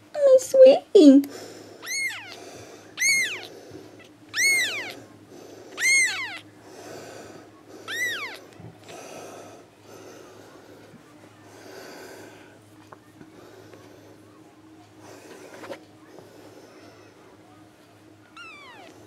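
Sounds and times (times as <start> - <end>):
kitten mewing: 1.8 - 2.4, 3.0 - 5.0, 5.7 - 6.5, 7.9 - 8.4, 18.4 - 18.9.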